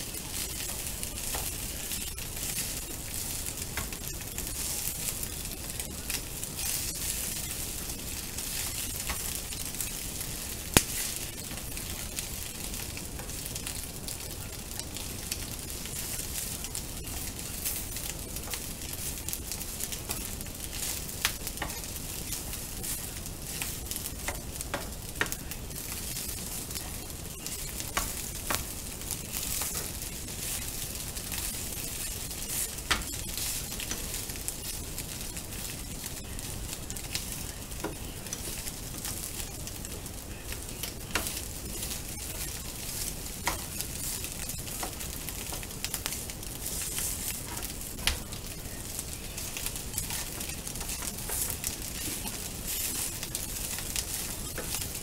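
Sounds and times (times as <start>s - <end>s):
rice sizzling in a frying pan: 0.0s - 55.0s.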